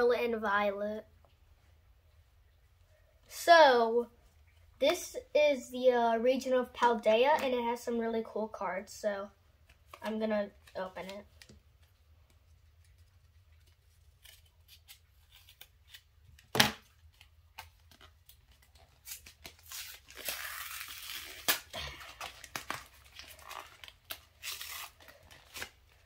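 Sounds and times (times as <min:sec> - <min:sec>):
foil and plastic wrapping tearing: 0:13.5 - 0:26.0.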